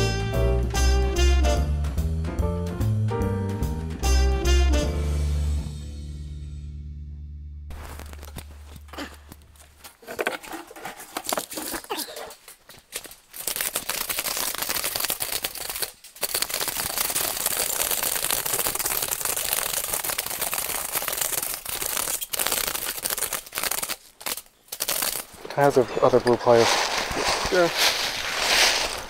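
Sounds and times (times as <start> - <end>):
close rustling and crinkling: 7.7 - 29.0.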